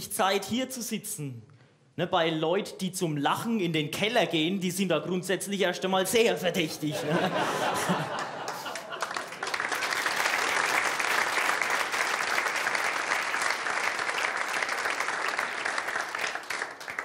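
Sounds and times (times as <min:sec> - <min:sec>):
audience applauding: 0:07.6 - 0:17.0.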